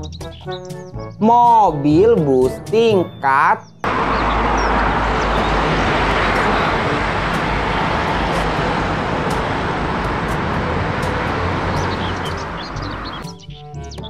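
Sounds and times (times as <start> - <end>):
bus engine and road noise: 3.8 - 14.0.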